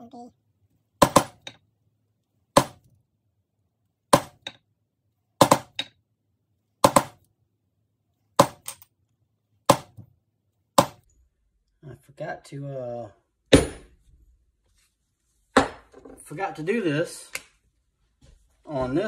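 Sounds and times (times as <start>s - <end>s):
maul striking stamp tool on leather: 6.8s - 7.2s.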